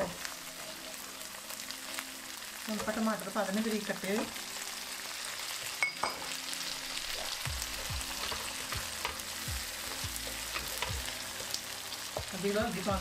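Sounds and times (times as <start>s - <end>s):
masala sizzling in oil: 0.0s - 13.0s
spoon scraping against pan: 7.2s - 11.8s.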